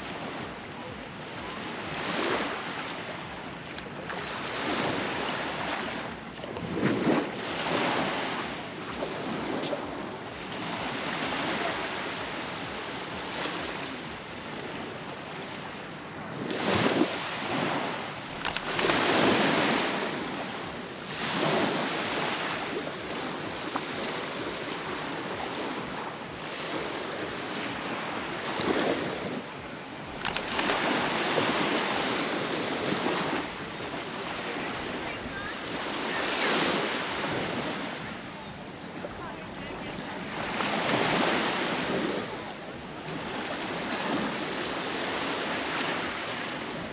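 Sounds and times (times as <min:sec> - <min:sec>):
surf breaking on beach: 0:16.3 - 0:25.8, 0:26.4 - 0:38.4.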